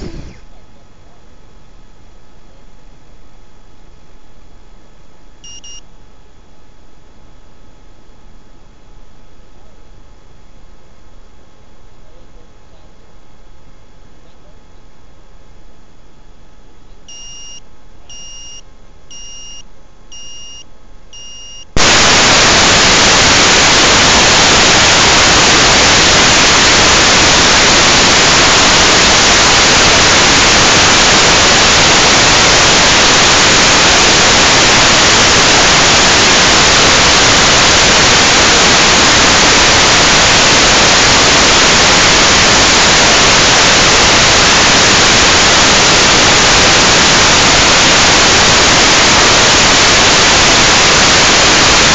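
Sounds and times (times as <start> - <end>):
loud steady static hiss: 0.0 - 51.9
short high electronic beeps: 5.5 - 5.8, 17.1 - 19.6, 20.2 - 20.6, 21.2 - 21.7.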